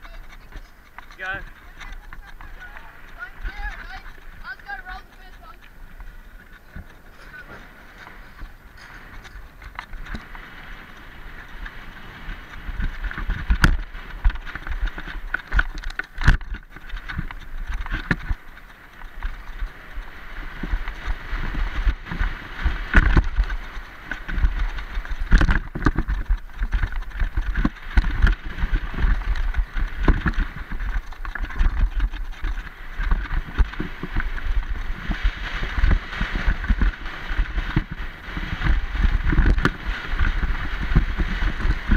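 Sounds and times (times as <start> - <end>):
bike rattles and knocks: 0.0 - 41.9
bike tyres rumbling on gravel: 0.0 - 41.9.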